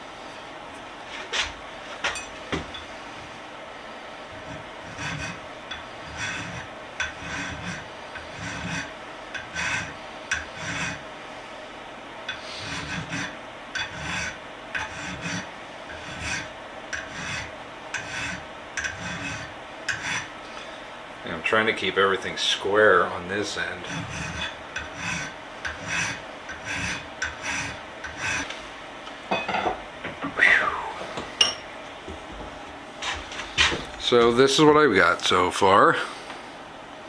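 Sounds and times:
file scraping steel: 4.3s - 11.1s, 12.3s - 20.4s, 23.4s - 28.6s.

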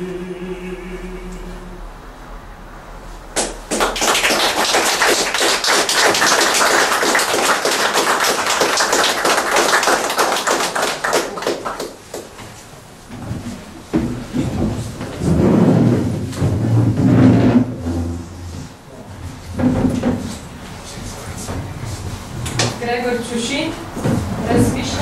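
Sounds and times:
audience applauding: 3.4s - 12.4s.

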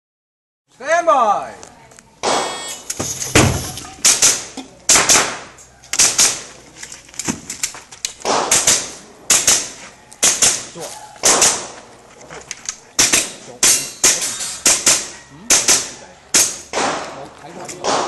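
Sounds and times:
rapid handgun shots: 4.0s - 6.5s, 8.2s - 11.8s, 13.0s - 17.2s, 17.8s - 18.0s.

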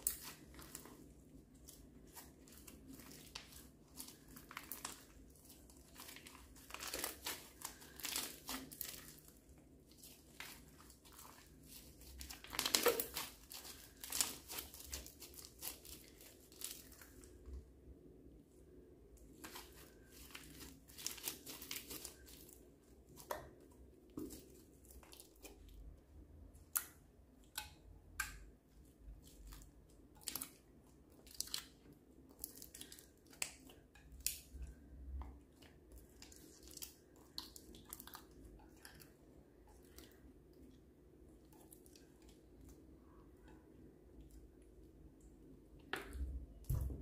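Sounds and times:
slime crackling and popping: 0.0s - 17.2s, 29.3s - 35.2s.

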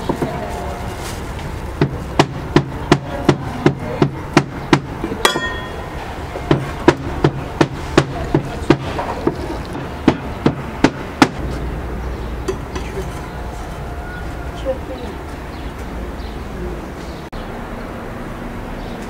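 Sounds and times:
sharp knocks: 1.8s - 11.8s
ringing metallic clink: 5.2s - 6.0s.

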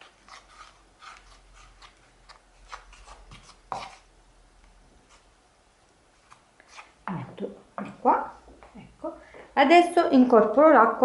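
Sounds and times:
wooden spoon stirring flour in bowl: 0.0s - 4.2s.

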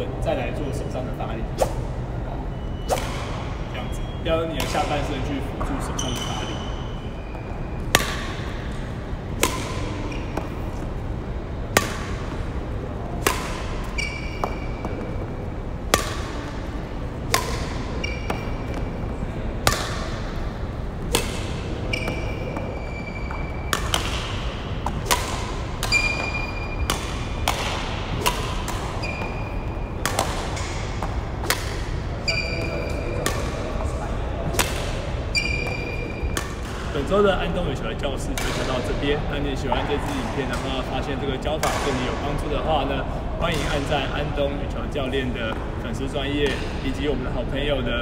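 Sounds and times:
racket striking shuttlecock: 2.8s - 3.7s, 4.5s - 37.1s, 38.4s - 38.8s, 41.5s - 42.2s, 43.4s - 43.9s
shoes squeaking on wooden floor: 5.7s - 7.5s.

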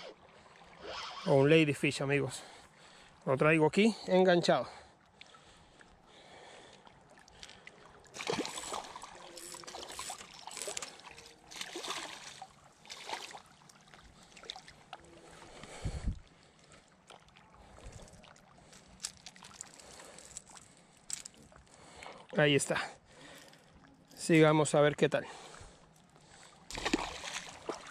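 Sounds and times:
fish splashing in water: 7.1s - 15.5s, 26.7s - 27.9s.

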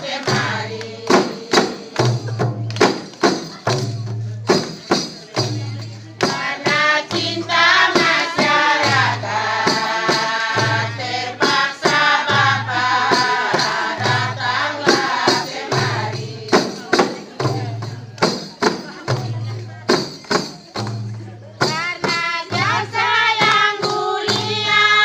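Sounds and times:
women singing in unison: 0.0s - 2.6s, 6.2s - 17.8s, 21.6s - 25.0s
frame drums beating: 0.0s - 25.0s.

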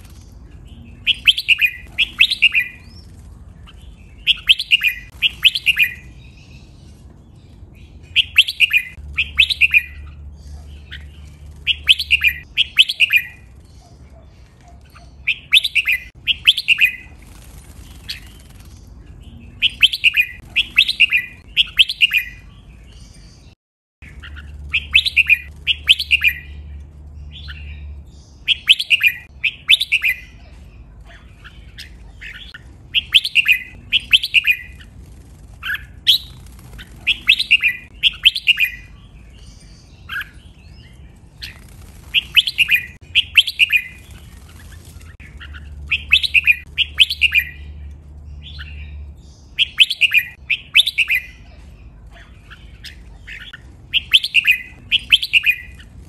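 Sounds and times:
bird singing whistled phrases: 1.0s - 3.0s, 4.2s - 6.1s, 8.2s - 10.1s, 10.9s - 13.4s, 15.3s - 17.1s, 24.2s - 26.6s, 28.5s - 30.4s, 32.4s - 34.8s, 37.1s - 39.0s, 42.2s - 44.0s, 45.4s - 47.6s, 49.6s - 51.4s, 53.3s - 55.8s.

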